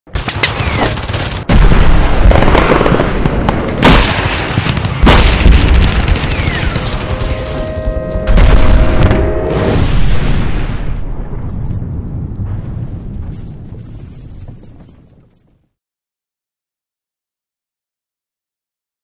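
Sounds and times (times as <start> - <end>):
gunfire crackle: 0.2 - 7.6.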